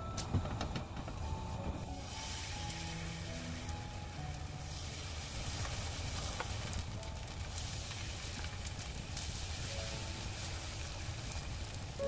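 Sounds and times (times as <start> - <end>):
batter sizzling in a frying pan: 1.9 - 12.0.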